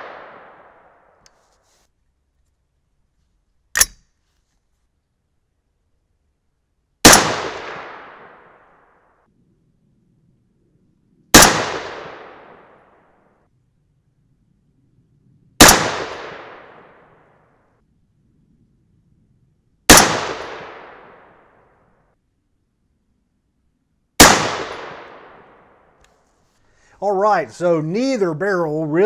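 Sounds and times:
rifle shots: 0.0 - 0.9, 7.0 - 8.7, 11.3 - 13.0, 15.6 - 17.2, 19.9 - 21.5, 24.2 - 25.8.

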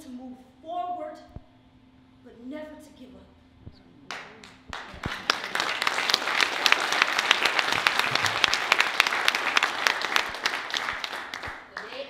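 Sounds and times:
audience applauding: 4.1 - 12.0.

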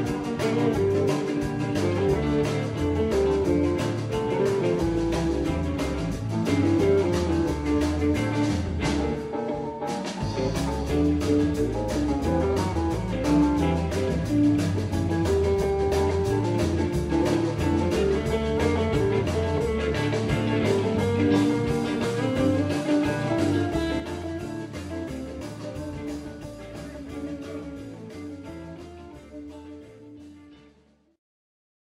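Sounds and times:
rock band playing live: 0.0 - 30.9.

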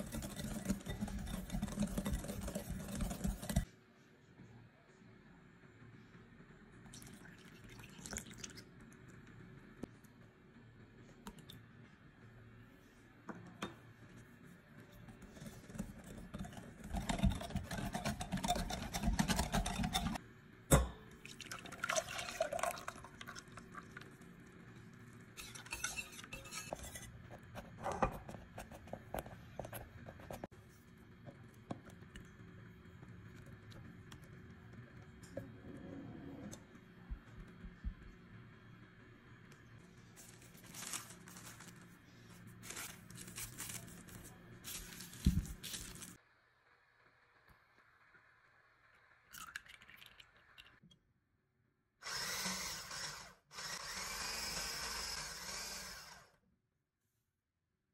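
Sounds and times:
whisk beating in glass bowl: 0.0 - 3.7, 15.1 - 20.2, 25.4 - 27.1
liquid pouring: 6.9 - 8.7, 21.2 - 24.2, 49.3 - 50.8.

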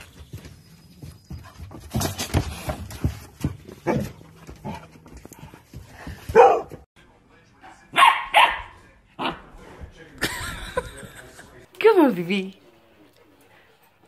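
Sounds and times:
dog barking: 6.3 - 6.8, 7.9 - 9.4.

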